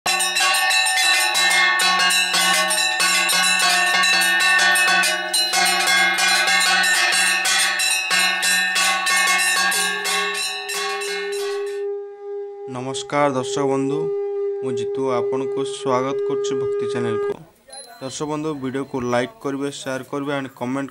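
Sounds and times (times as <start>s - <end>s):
temple bells ringing rapidly: 0.0s - 11.8s.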